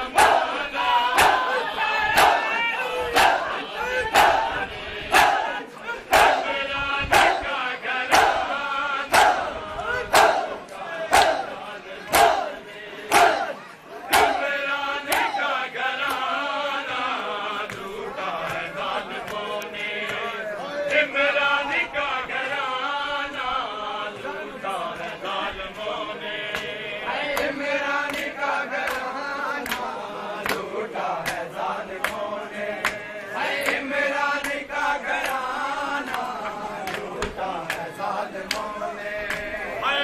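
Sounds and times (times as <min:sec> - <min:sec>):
men chanting in unison: 0:00.0 - 0:40.0
hands slapping bare chests: 0:15.1 - 0:15.4, 0:35.2 - 0:39.5.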